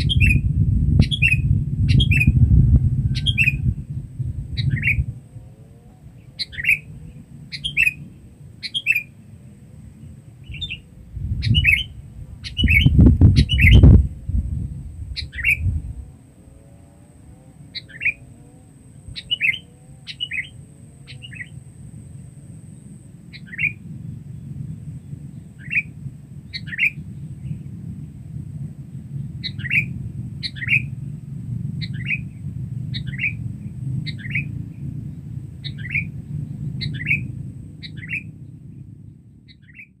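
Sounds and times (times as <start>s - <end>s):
bulbul calling: 0.0s - 2.5s, 4.6s - 5.1s, 6.3s - 8.0s, 8.6s - 9.1s, 10.4s - 14.0s, 15.2s - 15.7s, 17.7s - 18.3s, 19.0s - 21.6s, 23.3s - 23.8s, 26.5s - 27.0s, 29.4s - 30.9s, 33.0s - 33.4s, 34.1s - 34.6s, 35.6s - 36.2s, 36.8s - 38.4s, 39.5s - 40.0s
low rumble: 0.0s - 40.0s.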